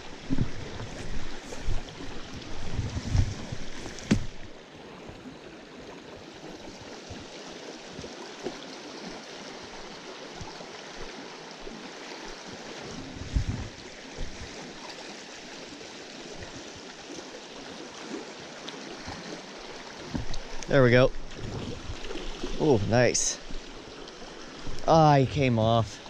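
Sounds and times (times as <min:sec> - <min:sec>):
creek rushing: 0:00.0 - 0:26.0
low thump: 0:03.2 - 0:04.5.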